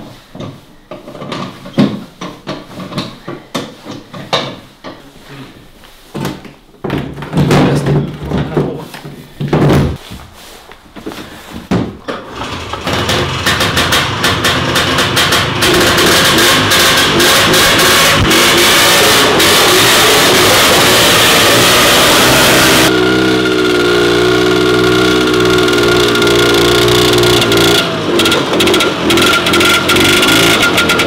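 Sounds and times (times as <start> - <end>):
snowmobile engine starting and running: 12.1 - 31.0.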